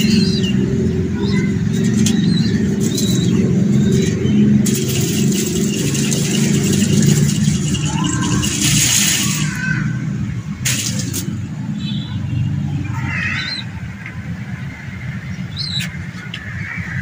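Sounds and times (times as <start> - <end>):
pigeons cooing: 0.0 - 9.4
high chirps of small birds: 0.0 - 10.0, 11.8 - 13.8, 14.6 - 17.0.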